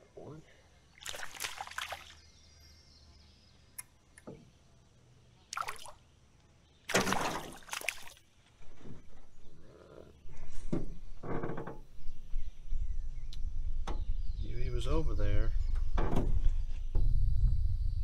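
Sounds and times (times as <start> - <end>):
water splashing: 1.0 - 2.2, 5.5 - 6.0, 6.9 - 8.3.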